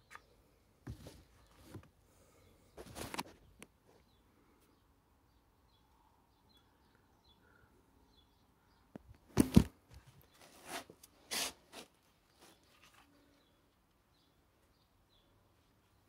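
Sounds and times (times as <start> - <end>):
rustling and scraping handling noise: 0.0 - 2.0, 2.7 - 4.1, 9.3 - 13.6.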